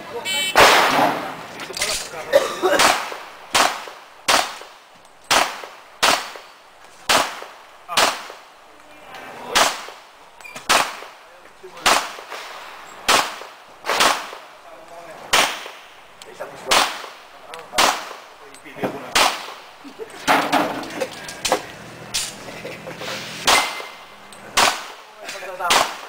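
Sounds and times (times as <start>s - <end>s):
pistol shots with echo: 0.5s - 1.3s, 2.7s - 4.7s, 5.3s - 6.5s, 7.1s - 8.4s, 9.5s - 10.0s, 10.6s - 11.2s, 11.8s - 14.5s, 15.3s - 15.9s, 16.7s - 18.3s, 19.1s - 19.6s, 23.5s - 25.0s, 25.6s - 26.0s.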